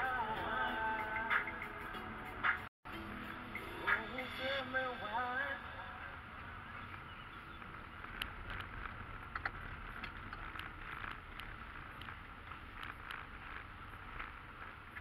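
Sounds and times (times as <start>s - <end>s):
road and engine rumble: 1.5s - 15.0s
light clicks and ticks: 6.4s - 15.0s.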